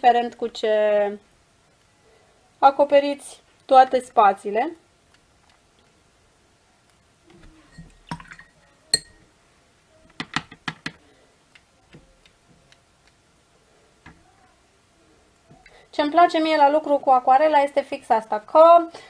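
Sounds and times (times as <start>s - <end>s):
paintbrush clinking on glass jar: 7.7s - 9.2s.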